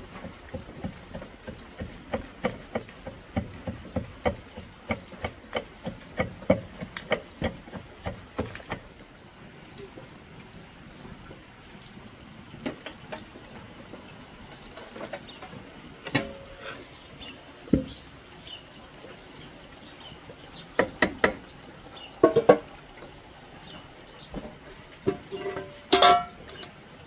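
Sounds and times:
metal kitchenware clinking: 25.1s - 26.6s.

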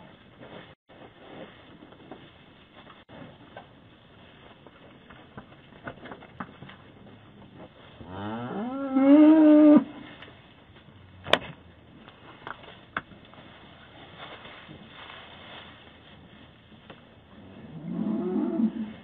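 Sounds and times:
cow mooing: 17.6s - 18.9s.

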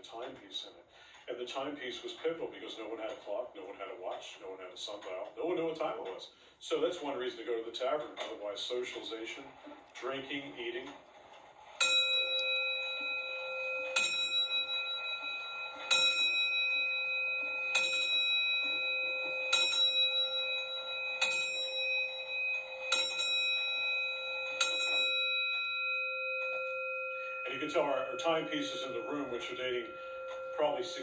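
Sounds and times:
clock bell striking: 11.8s - 31.0s.

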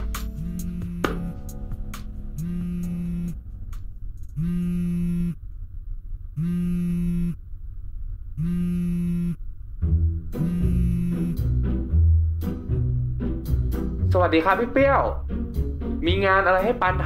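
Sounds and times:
low steady hum: 0.0s - 17.0s
mobile phone ringing: 0.4s - 1.3s, 2.4s - 3.4s, 4.4s - 5.4s.

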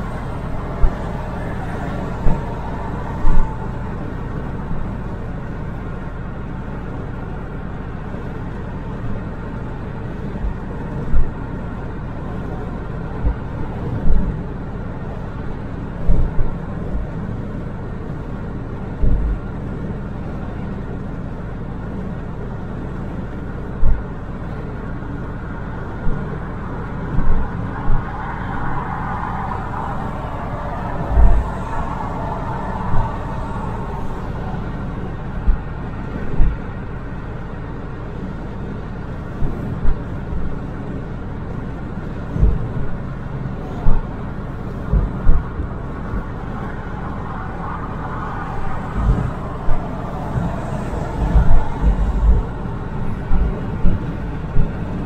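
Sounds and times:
tyre and road noise: 0.0s - 55.0s
low thumps: 48.9s - 50.5s.

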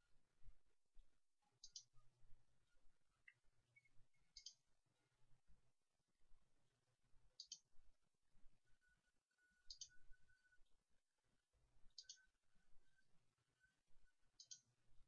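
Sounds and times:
faint mouse clicks: 1.6s - 2.0s, 3.2s - 4.7s, 7.4s - 7.7s, 9.7s - 10.0s, 11.9s - 12.3s, 14.4s - 14.8s.

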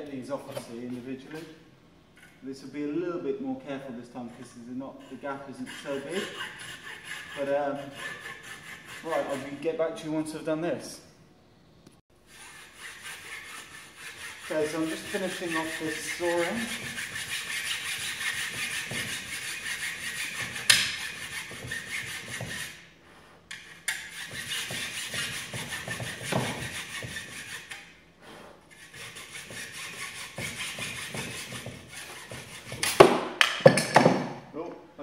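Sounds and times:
hacksaw cutting metal: 4.9s - 9.6s, 12.3s - 22.8s, 23.5s - 28.0s, 28.7s - 34.2s.

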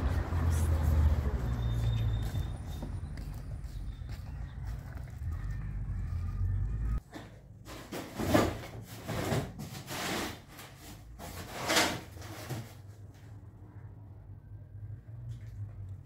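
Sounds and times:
low outdoor rumble: 0.0s - 7.0s
objects scraped across floor: 7.7s - 13.0s.

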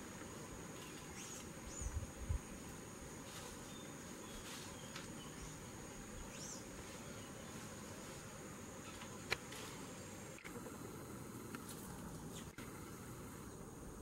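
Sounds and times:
insects trilling drone: 0.0s - 14.0s.

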